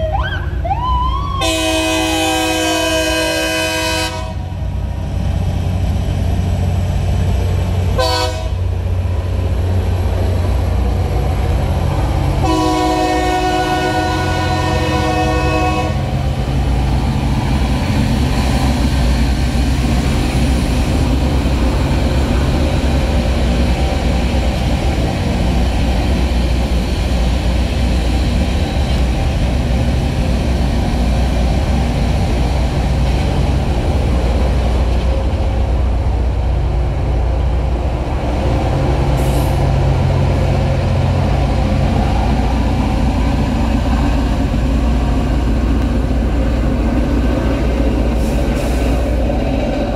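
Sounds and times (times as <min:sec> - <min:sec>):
diesel engine drone: 0:00.0 - 0:49.9
broad rushing noise: 0:04.1 - 0:49.9.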